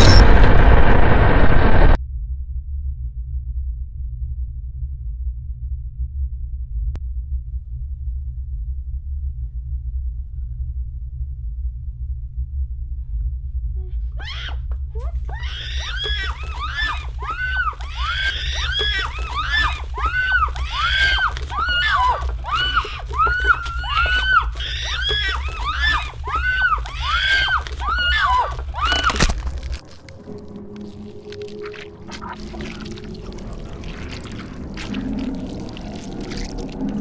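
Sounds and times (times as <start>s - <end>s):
low rumbling drone: 0.0s - 37.0s
high-pitched shrieking cries: 14.2s - 29.6s.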